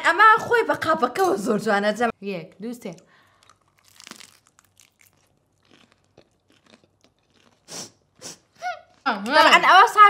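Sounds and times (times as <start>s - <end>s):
people chewing food: 3.2s - 9.6s
crunching and mouth clicks: 3.3s - 9.1s.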